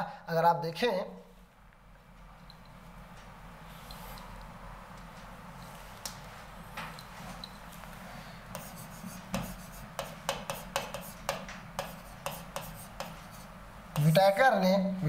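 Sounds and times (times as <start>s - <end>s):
pen tapping and scraping on screen: 8.5s - 14.2s.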